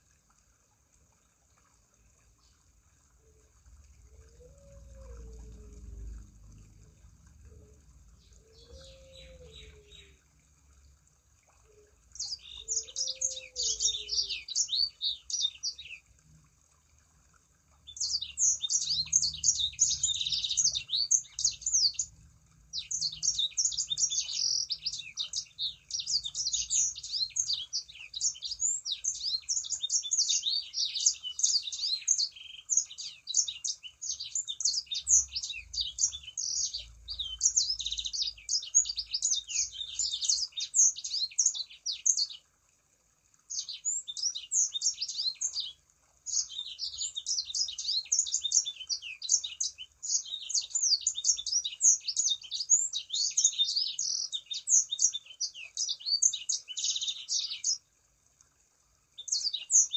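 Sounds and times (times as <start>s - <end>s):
songbird chattering song: 8.2s - 10.2s, 12.2s - 16.0s, 17.9s - 22.1s, 22.8s - 42.4s, 43.5s - 57.8s, 59.2s - 59.9s.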